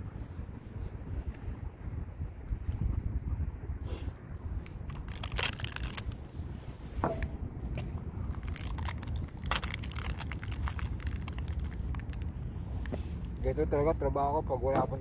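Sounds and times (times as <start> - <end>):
wind rumble on microphone: 0.0 - 15.0
crackly biting into chocolate: 4.8 - 6.3, 8.4 - 12.4
wrapper crinkling: 4.8 - 6.3, 8.3 - 13.4.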